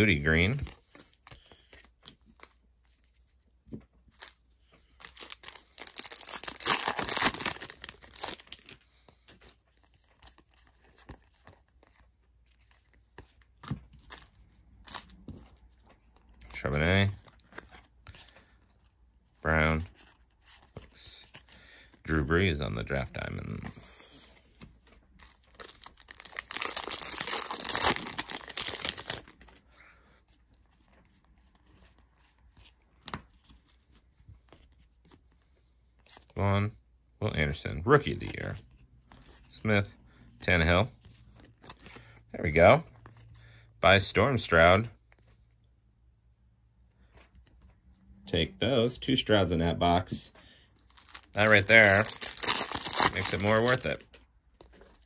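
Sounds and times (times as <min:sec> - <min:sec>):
plastic wrapper tearing and crinkling: 0:05.0 - 0:08.8, 0:25.2 - 0:29.6, 0:50.8 - 0:55.0.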